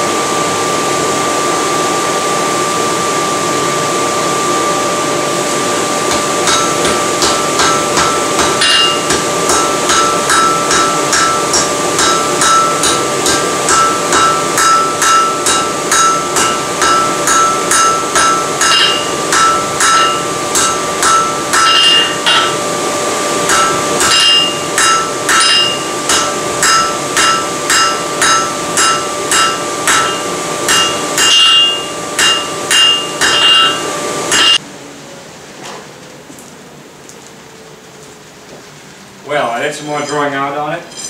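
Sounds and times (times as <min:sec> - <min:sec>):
steady hum: 0:00.0 - 0:41.0
hammer ringing on anvil: 0:06.1 - 0:22.6, 0:23.5 - 0:34.6.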